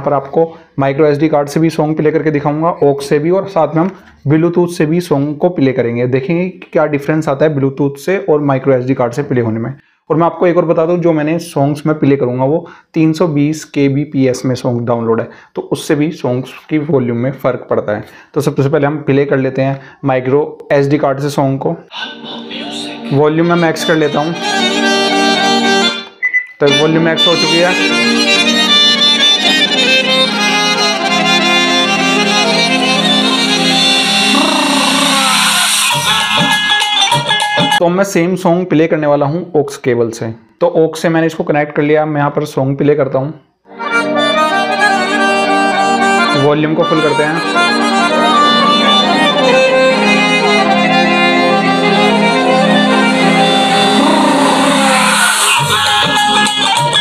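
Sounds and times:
song through a soundbar: 21.9 - 37.8, 43.7 - 57.0.

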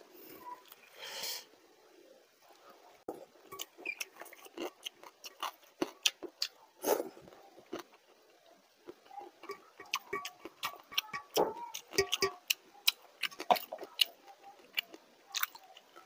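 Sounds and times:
fingers stirring rice in steel bowl: 9.3 - 14.0.

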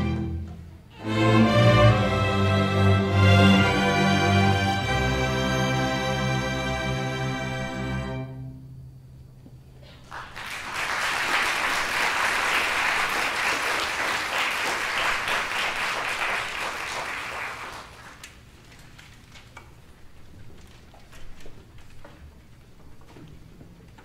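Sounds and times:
string orchestra chord: 0.0 - 8.8
audience applause: 10.0 - 18.4.

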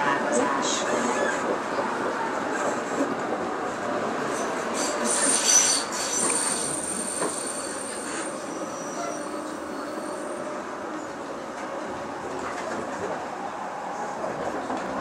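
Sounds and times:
tram rumble: 0.0 - 15.0
tram wheels squealing: 4.3 - 10.6.

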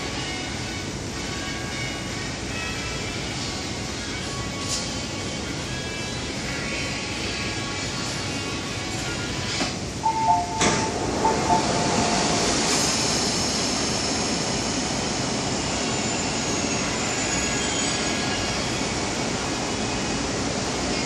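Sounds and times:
train doors clunking open: 9.6 - 13.4
two-note door chime: 10.0 - 12.8.

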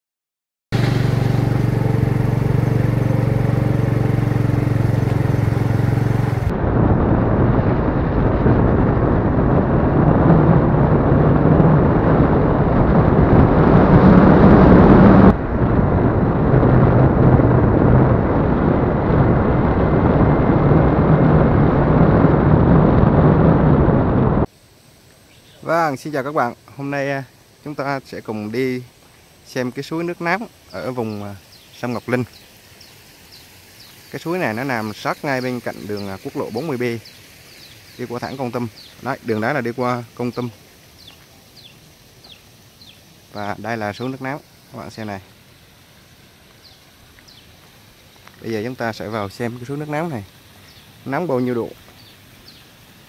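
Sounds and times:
vehicle engine running: 0.7 - 7.2
road rushing noise: 0.7 - 24.5, 27.2 - 53.0.

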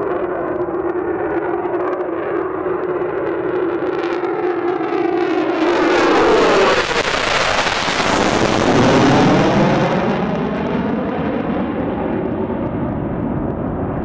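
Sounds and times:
jet engine roar: 0.0 - 14.0.

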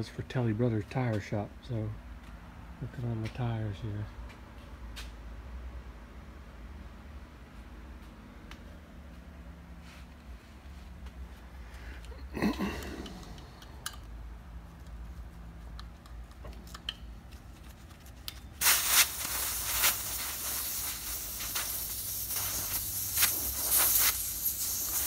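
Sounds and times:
compressed air hissing: 18.6 - 25.0.

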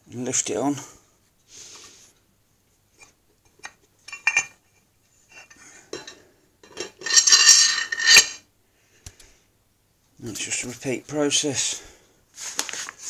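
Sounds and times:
metal parts clinking: 4.1 - 4.5, 6.0 - 8.4
metallic scrape and rattle: 6.0 - 8.4.

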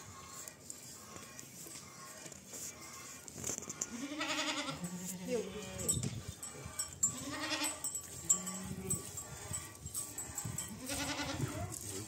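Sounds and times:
goats bleating: 1.2 - 5.9, 6.6 - 9.7, 10.4 - 12.0.

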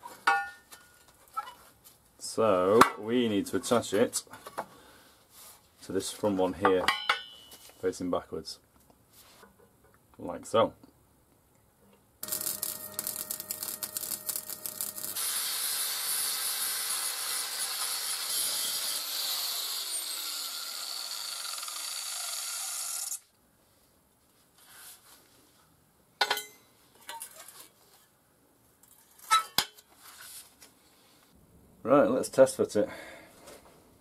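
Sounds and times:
sharp metal knocks: 6.9 - 7.5
welding crackle and hiss: 12.2 - 18.8.

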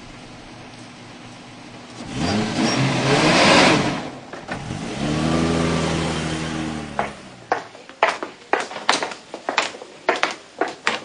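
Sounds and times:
truck engine revving: 1.6 - 7.6
loud rushing noise: 2.0 - 7.6.

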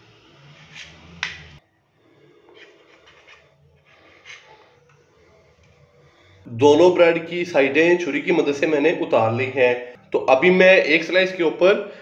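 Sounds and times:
knife scraping ceramic plate: 0.6 - 1.2, 2.5 - 4.7.

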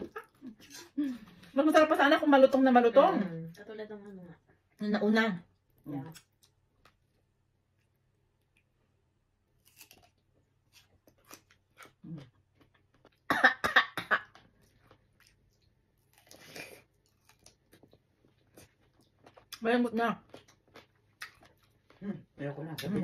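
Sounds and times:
person chewing: 6.0 - 13.3, 14.3 - 19.6, 20.2 - 22.0
cough-like vocal outburst: 13.3 - 14.3.

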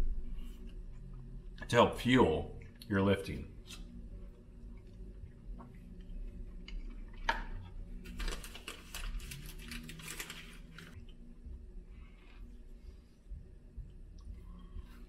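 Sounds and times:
wrapper crackling rustle: 8.0 - 11.0.

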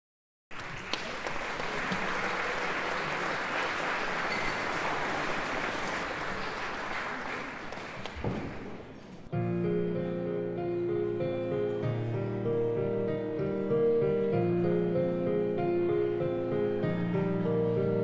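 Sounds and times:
audience applauding: 0.5 - 9.1.

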